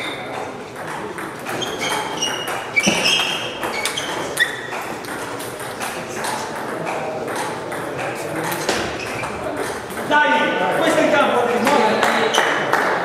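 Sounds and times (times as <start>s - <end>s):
short high squeaks: 1.5s - 4.8s.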